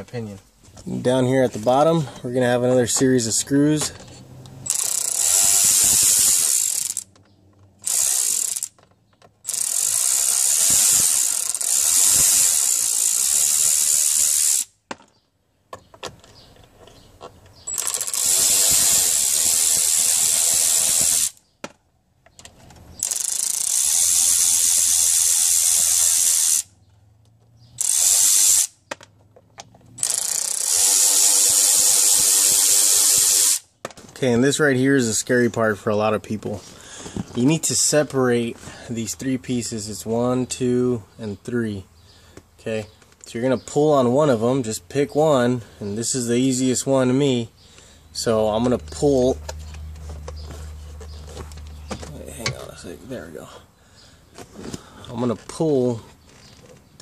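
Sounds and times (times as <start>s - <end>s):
cordless ratchet whirring: 4.0s - 8.8s, 9.4s - 14.8s, 17.6s - 21.4s, 22.9s - 26.7s, 27.8s - 29.0s, 29.9s - 33.7s.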